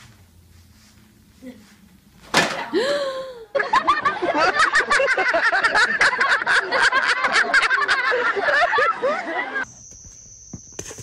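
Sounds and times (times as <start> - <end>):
crowd laughing: 2.8 - 9.6.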